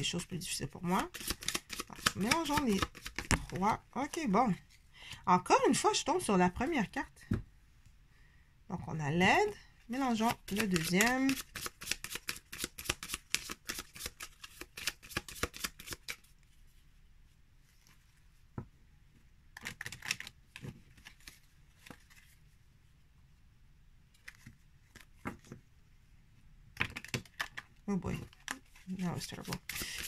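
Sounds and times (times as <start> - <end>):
cards riffle-shuffled: 1.0 - 3.7, 10.1 - 16.3, 19.6 - 22.4, 24.2 - 25.6, 26.8 - 30.0.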